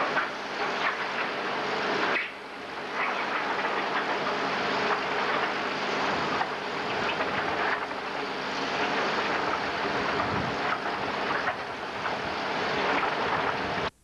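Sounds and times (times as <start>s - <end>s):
concrete mixer running: 0.0s - 14.0s.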